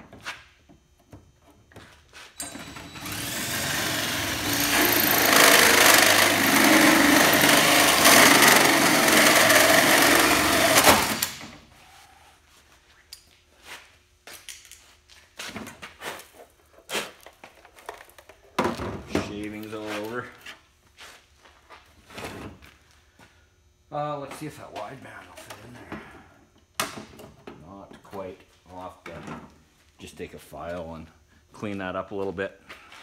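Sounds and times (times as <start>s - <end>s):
drill hole saw cutting whir: 2.4s - 11.4s.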